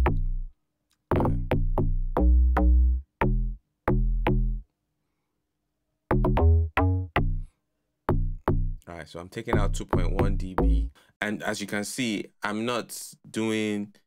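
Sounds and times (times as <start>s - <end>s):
punchy log drum bass notes: 0.0s - 0.4s, 1.1s - 4.6s, 6.1s - 7.5s, 8.1s - 8.8s, 9.5s - 10.9s.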